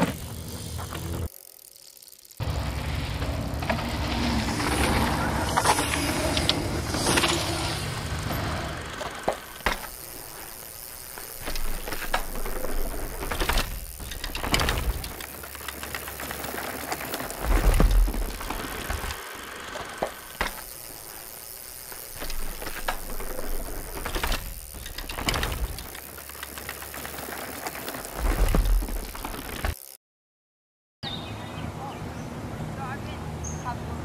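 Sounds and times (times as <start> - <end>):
bike tyres rolling on dirt: 0.0 - 30.0
bikes landing with thuds: 2.4 - 29.9.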